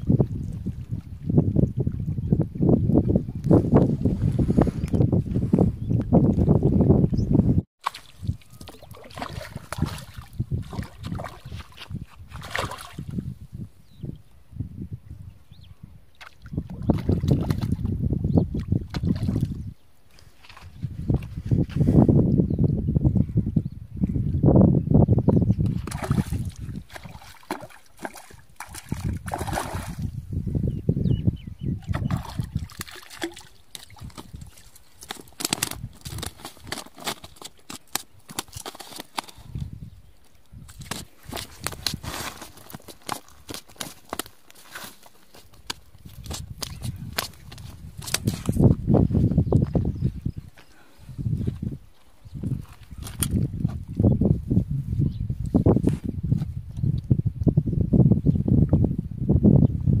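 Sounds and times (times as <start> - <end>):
fish splashing in water: 7.8 - 11.6, 25.8 - 30.1, 31.9 - 39.2.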